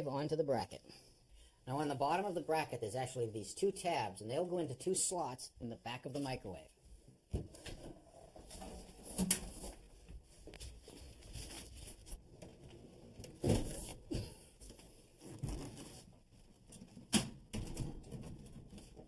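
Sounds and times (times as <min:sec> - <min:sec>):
rustling and shuffling: 0:06.2 - 0:17.1.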